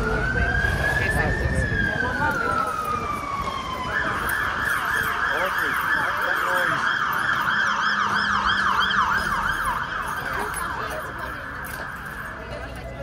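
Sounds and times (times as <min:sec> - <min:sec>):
emergency vehicle siren: 0:00.0 - 0:13.0.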